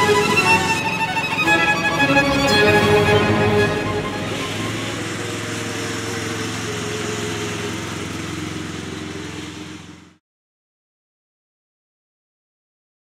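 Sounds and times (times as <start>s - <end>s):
lawn tractor engine running: 0.0s - 10.2s.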